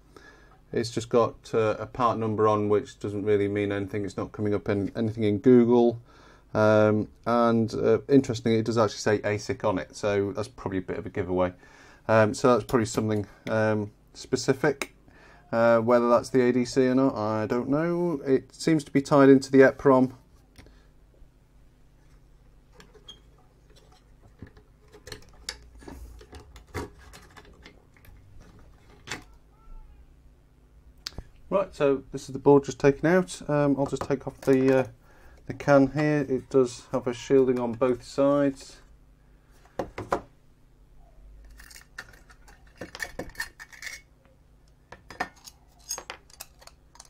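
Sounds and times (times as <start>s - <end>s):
small metallic clinks and scraping: 41.4s - 44.1s, 45.1s - 47.0s.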